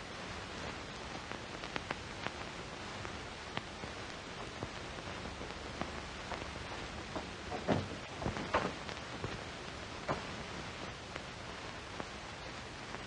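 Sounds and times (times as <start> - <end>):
faint crackles and clicks: 0.0 - 13.0
film soundtrack surface hiss: 0.0 - 13.0.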